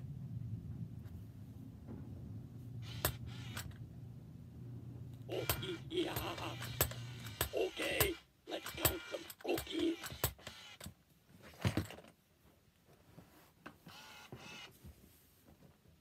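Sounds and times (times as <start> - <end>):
toy mechanism clicking and creaking: 2.8 - 3.8, 5.3 - 11.0.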